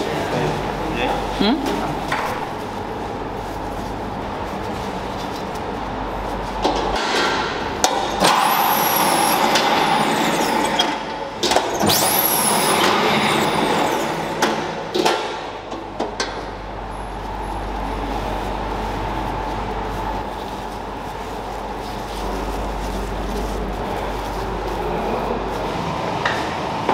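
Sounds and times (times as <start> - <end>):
factory machinery hum: 0.0 - 26.9.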